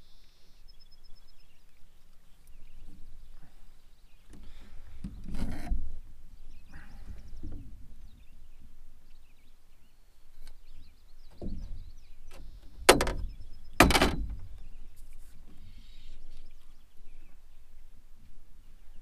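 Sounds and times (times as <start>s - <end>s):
hollow knocks on metal boat hull: 12.8s - 14.5s.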